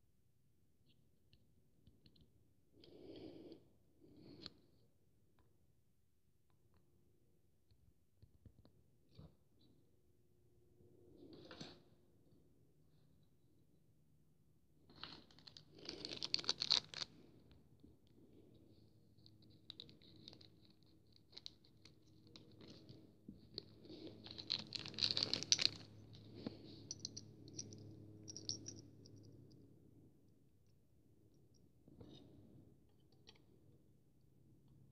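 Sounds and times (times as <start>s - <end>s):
plastic bag crinkling: 24.2s - 25.8s.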